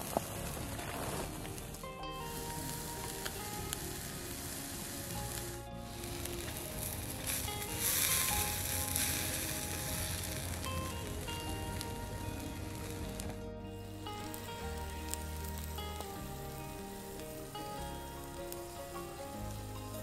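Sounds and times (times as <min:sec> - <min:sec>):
burger patty sizzling on grill: 0:00.0 - 0:20.0.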